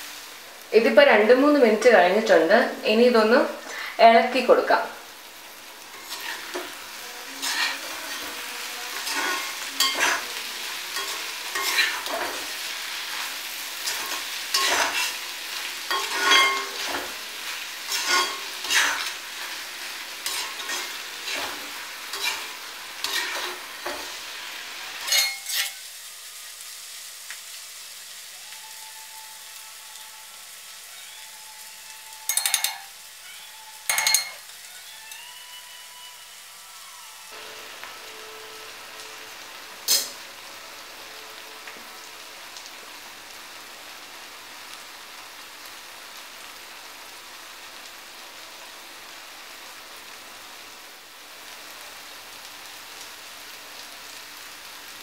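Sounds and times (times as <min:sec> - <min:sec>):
food sizzling in oil: 0:00.0 - 0:55.0
metal spatula scraping pan: 0:05.9 - 0:24.3, 0:24.9 - 0:25.8, 0:32.3 - 0:33.0, 0:33.9 - 0:34.5.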